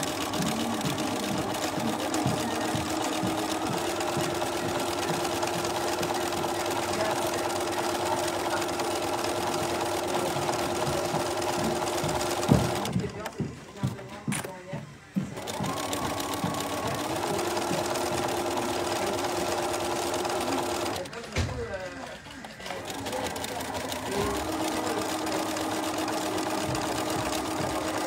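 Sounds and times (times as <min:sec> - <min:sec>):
sewing machine stitching: 0:00.0 - 0:13.3, 0:15.2 - 0:28.0
sewing machine knock: 0:00.0 - 0:21.8, 0:22.8 - 0:28.0.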